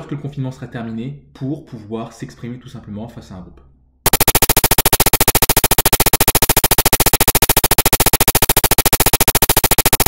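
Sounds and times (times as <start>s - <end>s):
pulsing synthesized buzzing tone: 4.1s - 10.0s.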